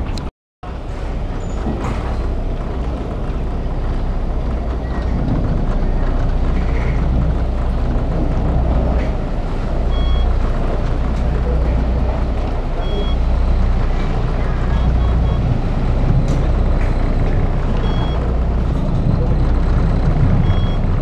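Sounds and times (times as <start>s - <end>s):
ferry engines droning: 0.0s - 21.0s
water churning: 0.7s - 21.0s
short high beep: 14.4s - 15.4s.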